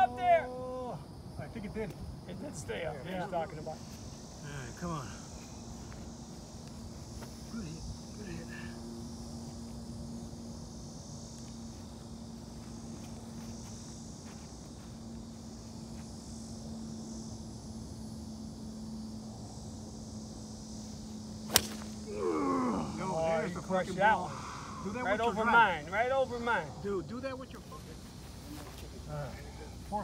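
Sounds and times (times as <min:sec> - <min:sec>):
steady low hum: 0:00.0 - 0:30.0
faint high hiss: 0:15.4 - 0:30.0
golf club striking ball: 0:21.5 - 0:22.0.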